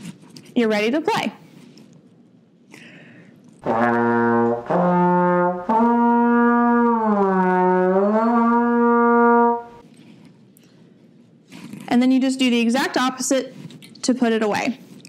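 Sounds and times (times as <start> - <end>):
trombone notes gliding: 3.6 - 9.8.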